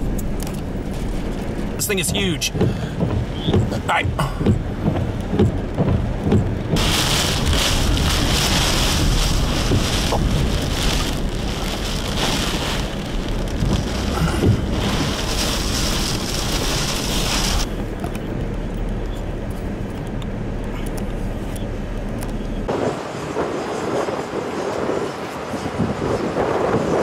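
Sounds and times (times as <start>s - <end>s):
heavy rain pounding a vehicle: 0.0s - 19.2s
low wind rumble: 0.0s - 27.0s.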